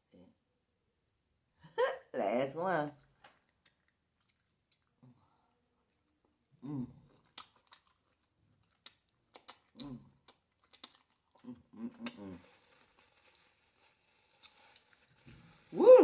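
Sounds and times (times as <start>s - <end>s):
wet lip smacks while eating: 3.2s - 5.0s, 7.1s - 12.2s
person humming mm: 6.6s - 7.0s, 11.4s - 12.4s.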